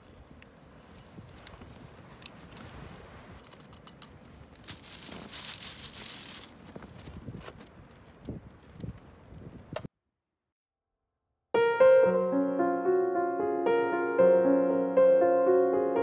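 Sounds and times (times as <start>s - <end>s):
light handling clicks and rustles: 0.0s - 9.9s
clothing rustle: 4.1s - 8.7s.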